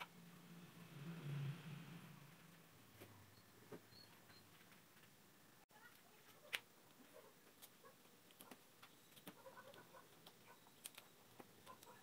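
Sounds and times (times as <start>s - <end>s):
fingers handling tape: 5.9s - 12.0s.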